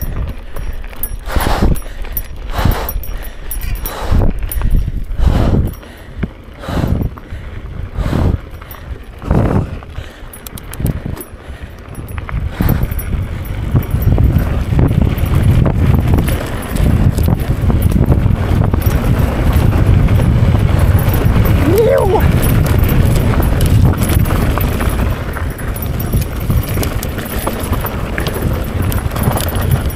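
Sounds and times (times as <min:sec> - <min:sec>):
person breathing heavily: 0:00.0 - 0:13.6
bike rattling: 0:00.0 - 0:29.9
bike tyres rolling on gravel: 0:00.0 - 0:29.9.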